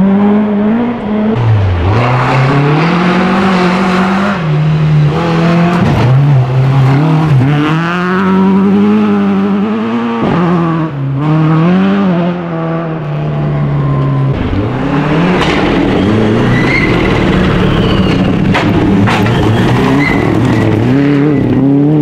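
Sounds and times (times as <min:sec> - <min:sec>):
rally car approaching: 0:00.0 - 0:22.0
rally car engine revving: 0:00.0 - 0:22.0.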